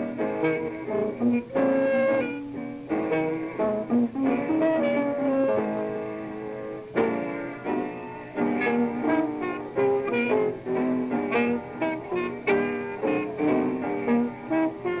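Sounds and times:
jazz trio playing: 0.0s - 15.0s
plucked guitar chords: 7.0s - 15.0s.

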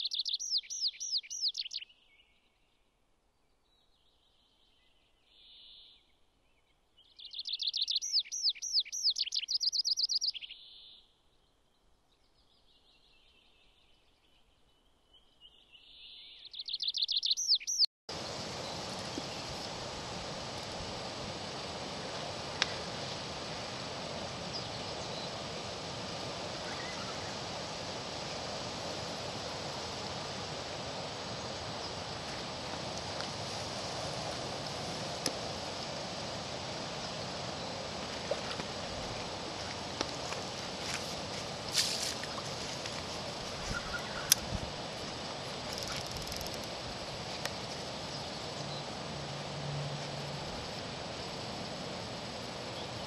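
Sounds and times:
wind with rustling leaves: 0.0s - 53.0s
rippling water: 18.1s - 53.0s
short rustle: 39.7s - 43.8s.

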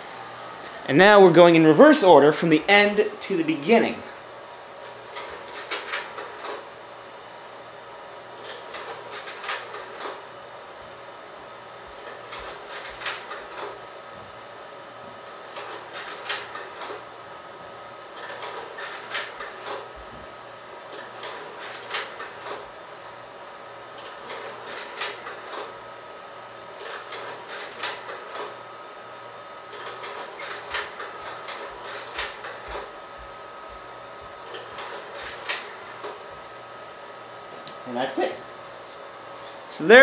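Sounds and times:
projector running hum: 0.0s - 40.0s.

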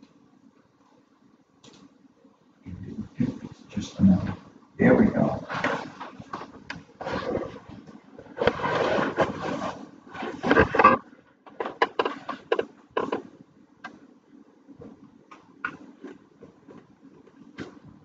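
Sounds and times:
paper sheets rustling: 5.4s - 13.2s.

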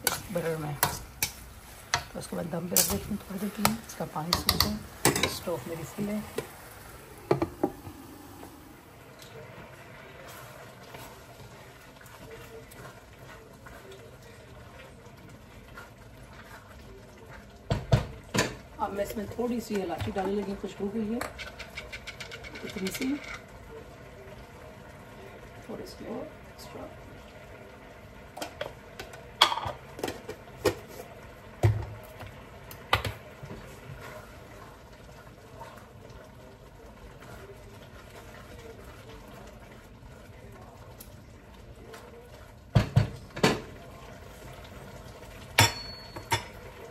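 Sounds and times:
food sizzling in a wok: 0.0s - 21.8s
milk simmering hiss: 0.0s - 46.9s.

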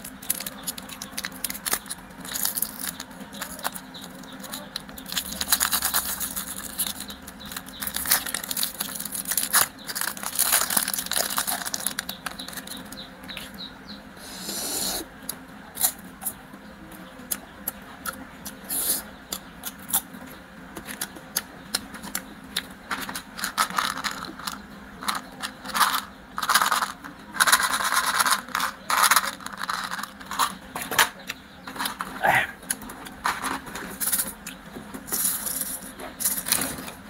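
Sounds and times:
wrappers crinkling: 0.0s - 12.8s
plastic candy cases clicking: 0.1s - 12.8s.

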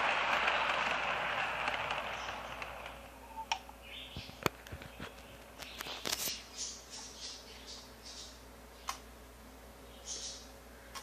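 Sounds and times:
model train rolling on track: 0.0s - 3.0s.

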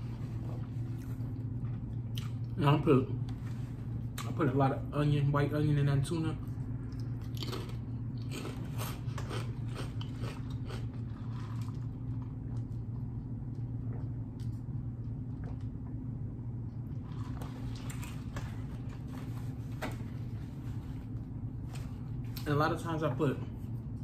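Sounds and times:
low hum: 0.0s - 24.0s
man chewing: 0.6s - 2.6s, 6.4s - 15.9s.

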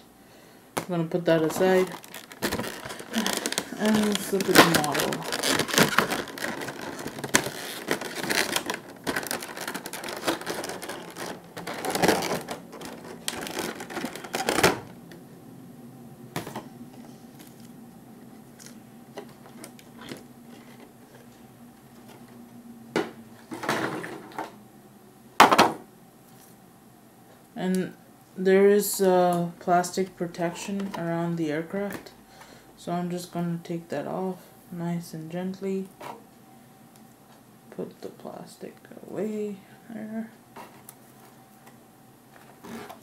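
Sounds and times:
cardboard and plastic rustling: 1.3s - 15.0s, 16.4s - 17.7s, 18.3s - 24.6s, 40.6s - 43.0s.

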